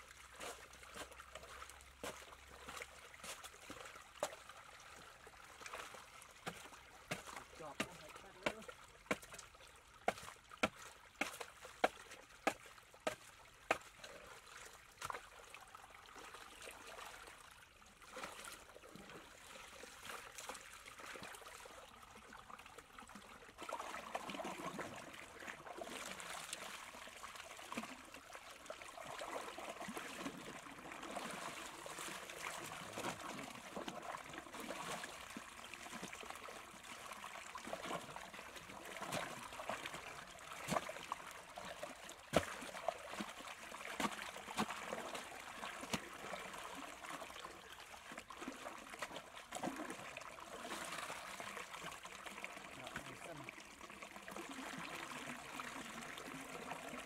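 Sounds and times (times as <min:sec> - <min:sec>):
water splashing: 0:00.0 - 0:17.4, 0:18.0 - 0:57.0
muddy water trickling: 0:00.0 - 0:57.0
shovel blade knocking in mud: 0:06.5 - 0:09.3, 0:10.1 - 0:13.8.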